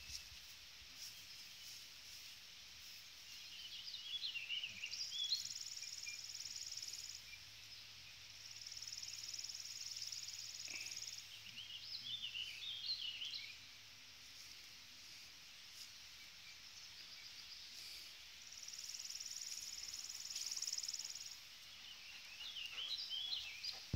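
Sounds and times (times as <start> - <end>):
songbird chirping: 0.0 - 23.9
insect trill: 4.2 - 11.3, 15.7 - 21.6.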